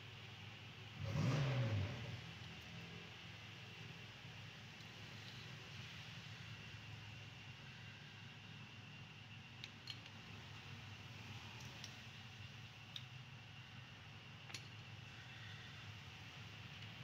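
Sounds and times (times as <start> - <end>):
low steady background hum: 1.8 - 17.0
faint plastic clicks and snaps: 9.6 - 10.7, 11.5 - 12.1, 12.8 - 13.2, 14.4 - 14.9.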